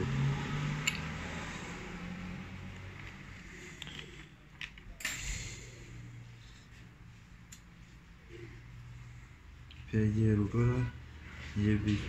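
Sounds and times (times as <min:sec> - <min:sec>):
metal parts clicking: 0:00.8 - 0:01.0.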